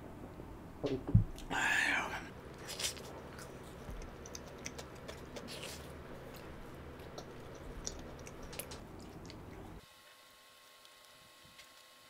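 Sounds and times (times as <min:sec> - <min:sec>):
person chewing food: 0:02.5 - 0:09.8.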